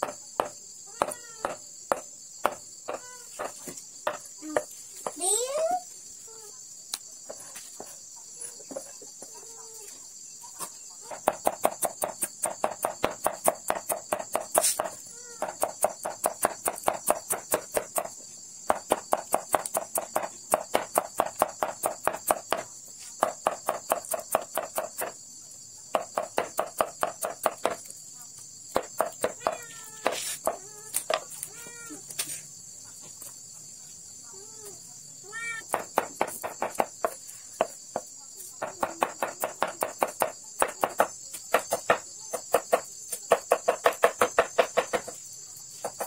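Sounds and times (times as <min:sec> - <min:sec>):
high insect hum: 0:00.0 - 0:46.0
knife chopping on wooden board: 0:11.2 - 0:18.1, 0:28.7 - 0:31.2, 0:35.7 - 0:37.8, 0:38.6 - 0:45.2.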